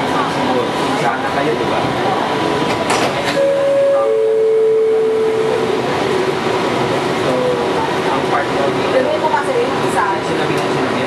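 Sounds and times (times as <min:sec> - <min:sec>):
train car background noise: 0:00.0 - 0:11.0
train doors sliding open: 0:02.6 - 0:04.2.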